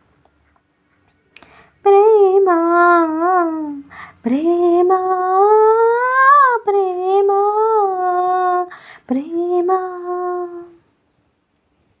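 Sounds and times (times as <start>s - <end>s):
woman singing long held notes: 1.8s - 10.8s
singer breathing: 3.9s - 4.2s, 8.7s - 9.1s.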